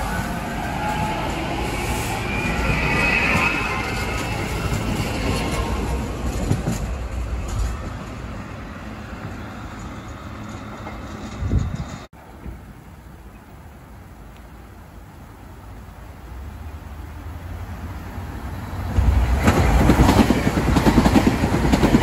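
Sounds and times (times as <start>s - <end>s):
train wheels squealing: 0.0s - 6.8s
electric train passing: 0.0s - 14.0s, 15.6s - 22.0s.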